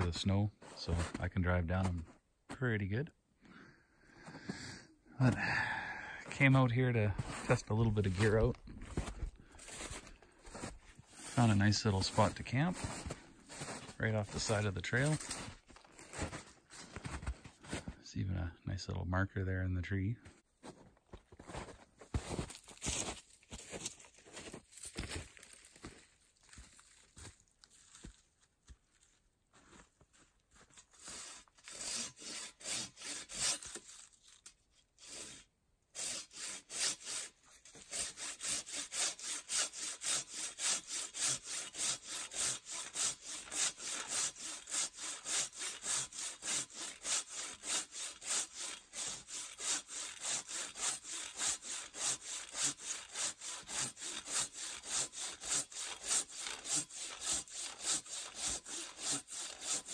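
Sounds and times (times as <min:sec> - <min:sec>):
hand saw cutting wood: 0:06.3 - 0:17.9, 0:30.7 - 0:59.9.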